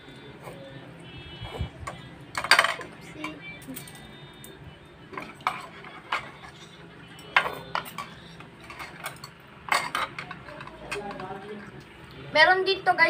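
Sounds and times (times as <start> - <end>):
utensils clinking against bowls: 1.5 - 11.9.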